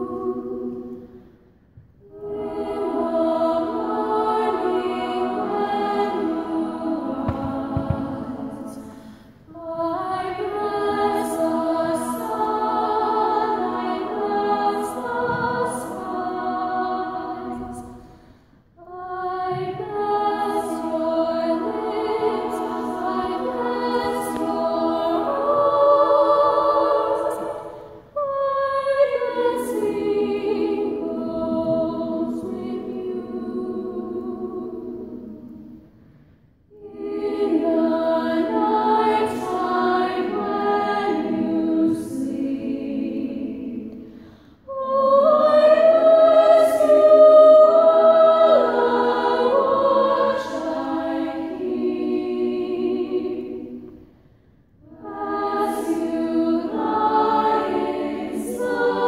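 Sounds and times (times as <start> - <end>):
two women singing a duet: 9.5 - 18.0.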